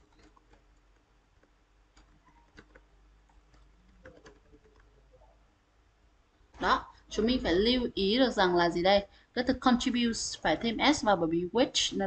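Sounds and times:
computer keyboard typing: 0.0 - 4.9.

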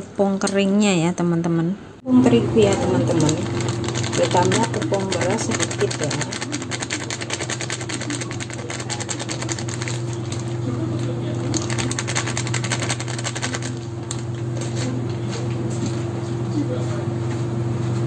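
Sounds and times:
small motor humming and rattling: 2.6 - 17.0.

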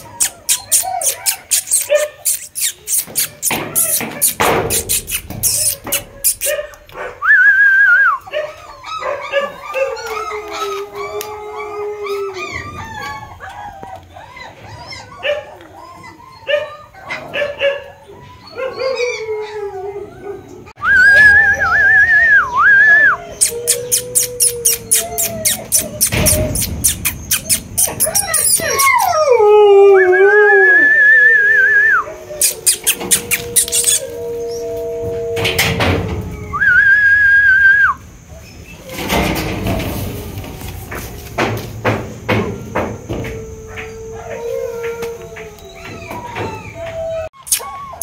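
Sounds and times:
puppies whining and yelping: 0.0 - 41.2, 42.6 - 48.0
puppy howl-like cry: 7.2 - 26.7, 27.3 - 38.0, 43.2 - 48.0
higher wavering cry: 28.0 - 38.0
quick sharp clicks: 47.4 - 47.7.

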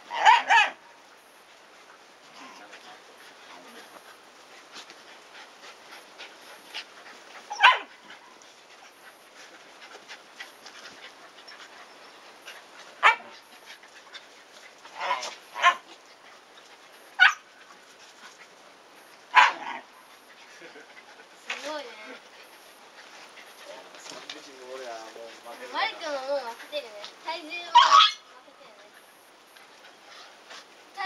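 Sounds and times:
dogs barking: 0.1 - 0.8, 7.5 - 8.0, 13.0 - 13.3, 15.0 - 15.9, 17.2 - 17.5, 19.3 - 19.9, 27.7 - 28.2
light scuffling: 22.8 - 27.8.

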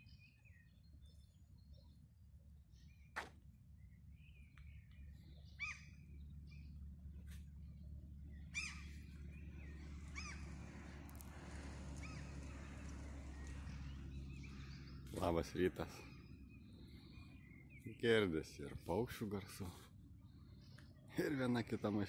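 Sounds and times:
birds calling: 0.0 - 22.0
car approaching: 5.0 - 18.8.

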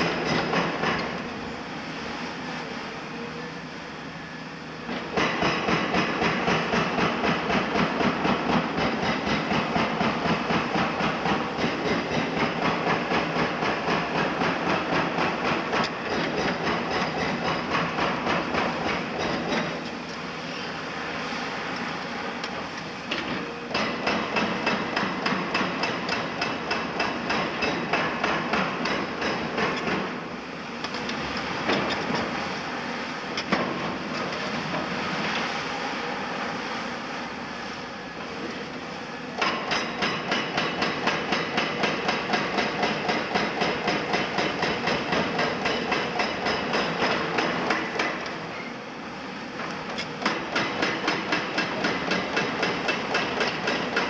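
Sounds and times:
hydraulic breaker pounding concrete: 0.0 - 1.4, 4.9 - 20.1, 22.5 - 32.4, 39.4 - 48.6, 49.7 - 54.0.

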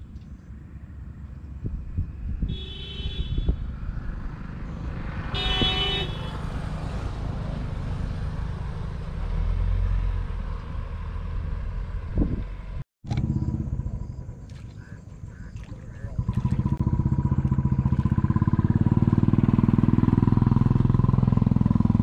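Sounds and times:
low traffic rumble: 0.0 - 22.0
vehicle horn honking: 2.5 - 3.6, 5.3 - 6.5
vehicle passing: 3.6 - 22.0.

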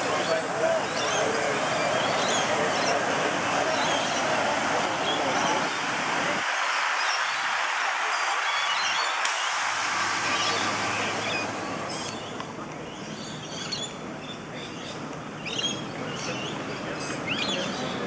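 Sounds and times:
steam hissing: 0.0 - 12.2
birds chirping: 0.0 - 18.0.

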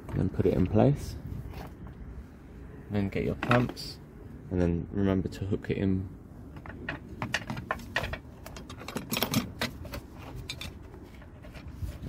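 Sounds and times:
battery bracket clicking and rattling: 6.5 - 11.6.

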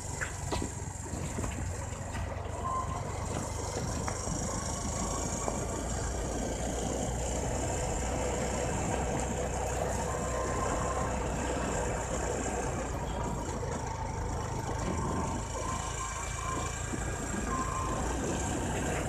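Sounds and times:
motorcycle engine running: 0.0 - 19.0
wind rushing over microphone: 14.6 - 19.0.

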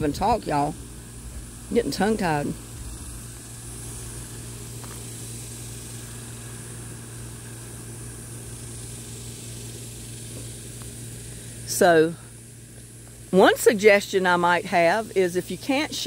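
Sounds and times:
high hiss: 0.0 - 16.0
low mechanical hum: 0.0 - 16.0.

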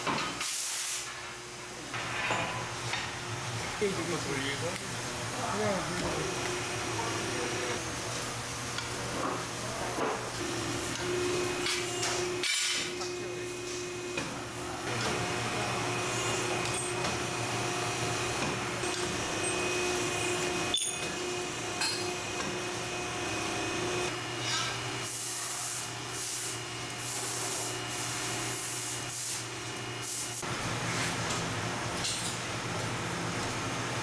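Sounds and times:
machine humming: 2.9 - 9.1, 10.3 - 25.2.

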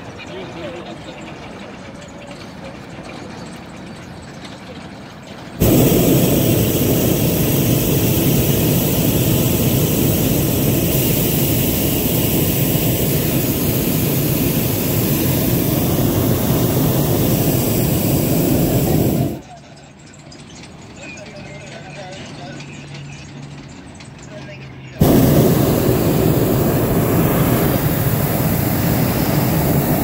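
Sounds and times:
propane burner blast: 5.6 - 19.4, 25.0 - 30.0.

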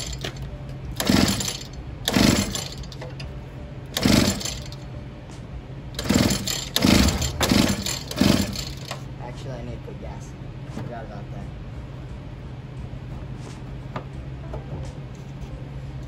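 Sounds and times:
small engine cranking: 0.0 - 0.4, 1.0 - 3.0, 3.9 - 4.8, 6.0 - 9.0.

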